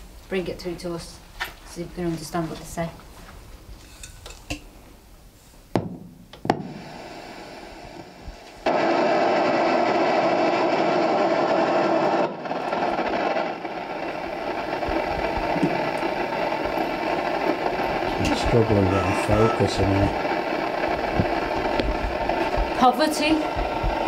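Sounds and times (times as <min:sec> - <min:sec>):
loud radio static: 0:12.1 - 0:24.0.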